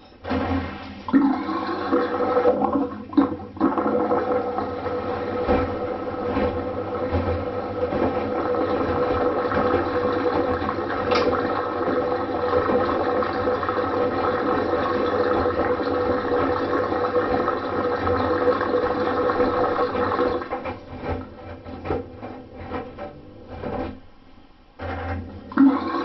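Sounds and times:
washing machine motor hum: 0.0s - 26.0s
water churning in drum: 0.2s - 24.1s, 24.8s - 26.0s
splashes and knocks: 4.8s - 24.0s.

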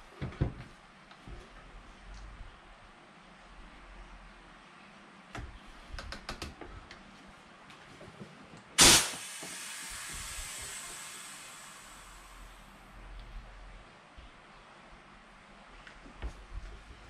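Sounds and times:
loud hiss: 8.8s - 12.8s.

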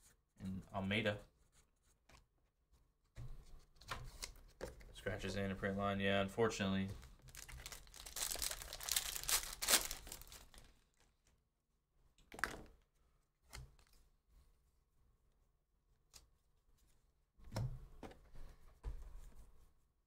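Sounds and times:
handling sounds: 7.0s - 10.7s
foil wrapper tearing and crinkling: 7.2s - 10.7s.

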